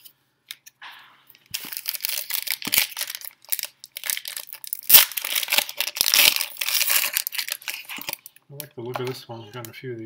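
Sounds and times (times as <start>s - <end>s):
foil wrapper crinkling: 1.5s - 9.2s
foil pack ripping open: 1.6s - 8.2s.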